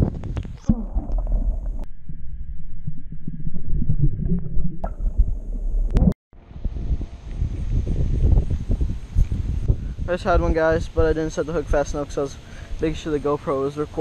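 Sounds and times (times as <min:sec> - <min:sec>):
microphone handling noise: 0:00.0 - 0:01.9, 0:03.5 - 0:10.1
wind: 0:00.0 - 0:01.9, 0:04.9 - 0:14.0
underwater rumble and gurgling: 0:00.0 - 0:06.2.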